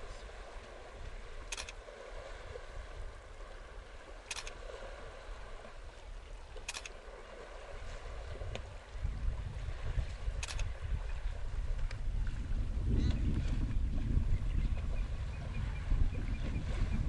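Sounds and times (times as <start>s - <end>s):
camera shutter clicking: 1.5s - 1.8s, 4.3s - 4.6s, 6.7s - 6.9s.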